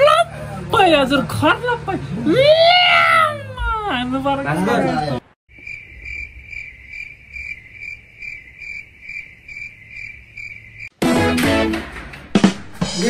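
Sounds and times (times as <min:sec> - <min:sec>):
voices: 0:00.0 - 0:05.4
cricket chirping: 0:05.5 - 0:10.9
music: 0:11.0 - 0:13.0.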